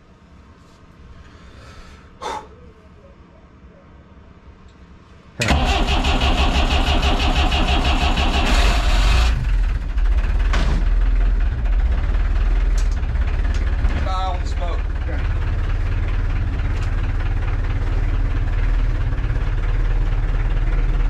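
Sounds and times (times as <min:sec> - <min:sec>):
diesel engine starting and running: 0:05.4 - 0:21.0.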